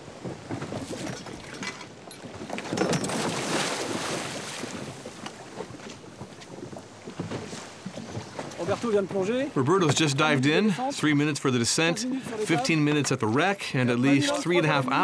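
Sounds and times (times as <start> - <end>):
water churning and bubbling: 0.0 - 15.0
diver splashing into water: 3.0 - 5.2.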